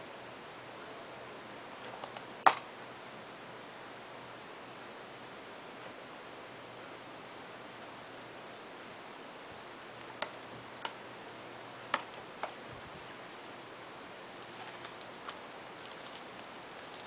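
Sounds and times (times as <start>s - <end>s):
steady hiss: 0.0s - 17.0s
shrink-wrap crinkling: 14.4s - 17.0s.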